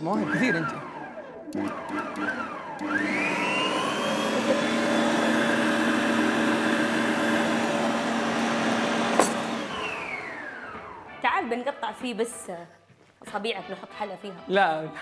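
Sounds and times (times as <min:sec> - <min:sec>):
stand mixer motor whining: 0:00.0 - 0:11.1.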